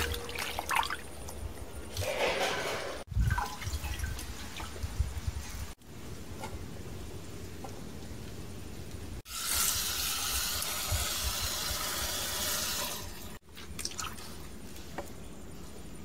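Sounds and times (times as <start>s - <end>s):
wet leaves handled in water: 0.0s - 1.1s, 13.4s - 15.7s.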